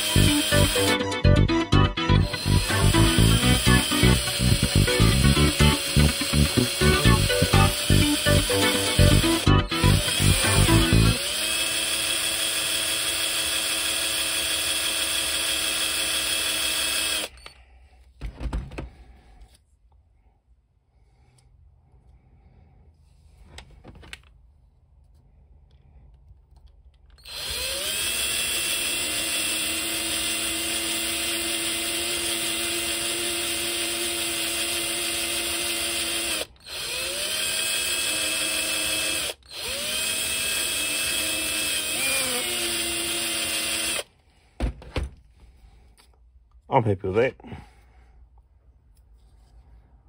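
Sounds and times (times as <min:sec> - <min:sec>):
cordless drill whining: 0:00.0 - 0:17.6, 0:27.1 - 0:44.2.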